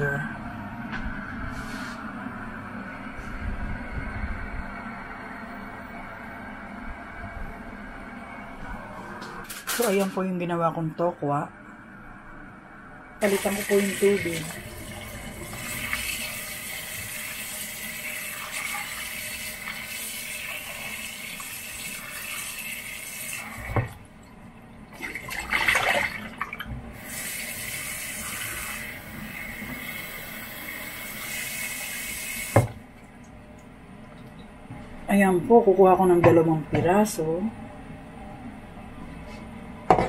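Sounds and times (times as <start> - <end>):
tap knock: 32.5 - 32.8
tap running into saucepan: 32.5 - 32.8.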